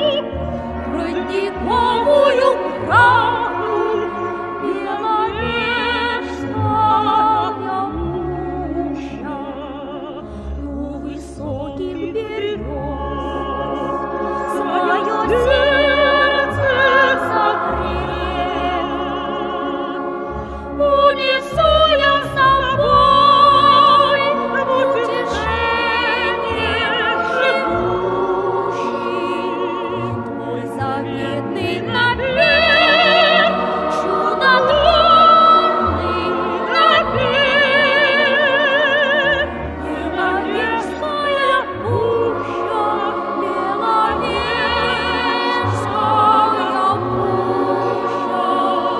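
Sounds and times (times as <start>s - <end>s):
musical accompaniment: 0.0s - 48.9s.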